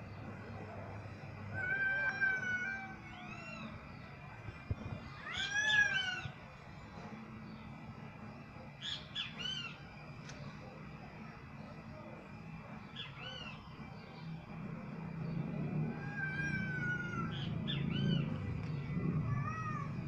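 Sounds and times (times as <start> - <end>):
cat yowling: 1.5 - 3.8, 5.1 - 6.4, 15.8 - 18.2, 19.0 - 20.0.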